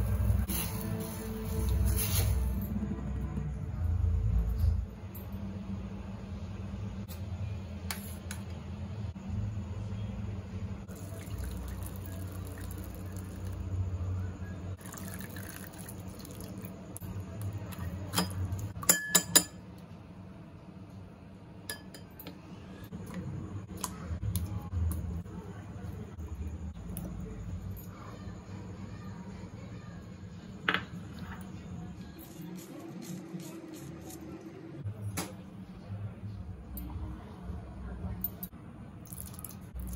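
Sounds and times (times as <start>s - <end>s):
liquid pouring: 10.9s - 13.6s, 14.8s - 16.9s, 39.0s - 39.9s.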